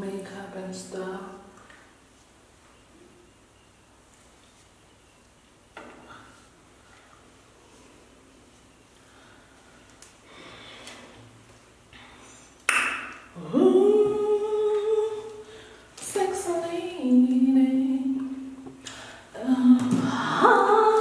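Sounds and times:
woman singing wordless tune: 13.4 - 21.0.

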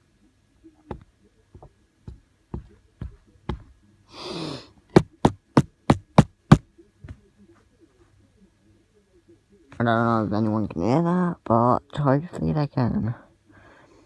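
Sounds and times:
knocking by hand: 0.9 - 3.8, 4.9 - 7.2
breathy sigh: 4.1 - 4.8.

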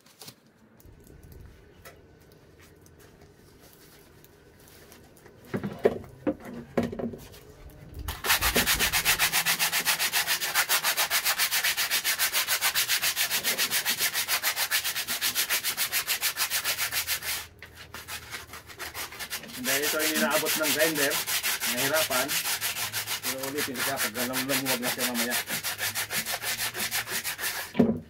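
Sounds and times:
rapid rasping scrubbing of metal: 8.1 - 27.8.

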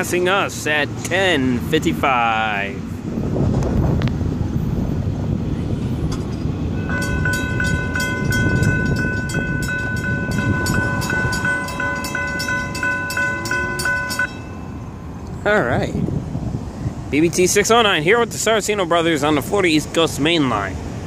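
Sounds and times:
freight train rumble: 0.0 - 21.0
railroad crossing bell ringing: 6.7 - 15.2.

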